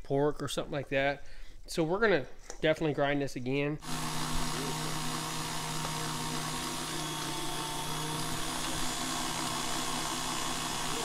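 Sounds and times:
stand mixer grinding meat: 0:03.8 - 0:11.0.

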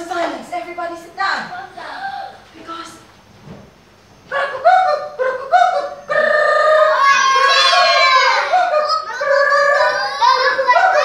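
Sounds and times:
young children chanting: 0:06.8 - 0:11.0.

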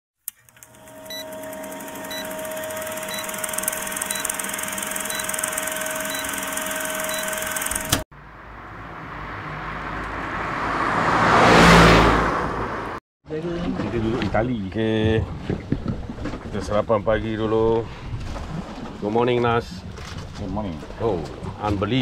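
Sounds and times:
film projector whirring rattle: 0:00.3 - 0:08.0.

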